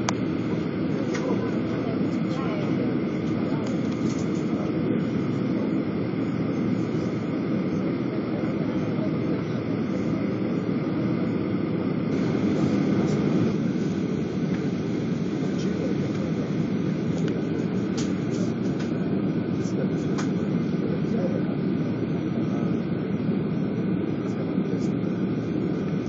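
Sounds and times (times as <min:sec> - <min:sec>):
jet engine and cabin noise: 0:00.0 - 0:26.0.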